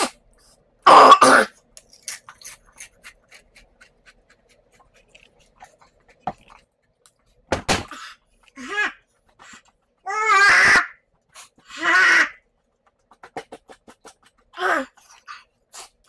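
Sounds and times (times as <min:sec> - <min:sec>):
breaths: 0:07.9 - 0:08.5.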